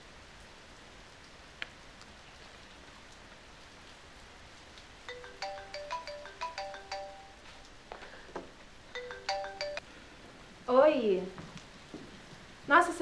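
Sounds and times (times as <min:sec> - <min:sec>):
rain hissing: 0:00.2 - 0:13.0
phone ringtone melody: 0:05.1 - 0:07.6, 0:09.0 - 0:09.8.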